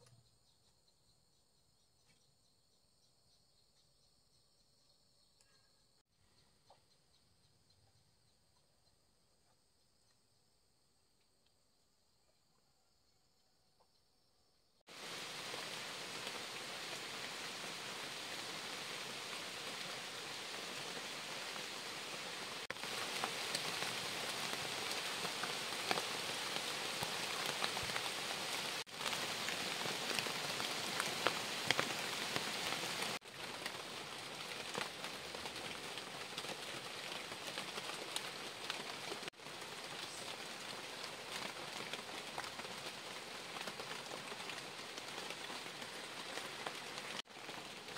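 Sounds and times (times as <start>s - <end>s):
rain on leaves: 14.9s - 47.9s.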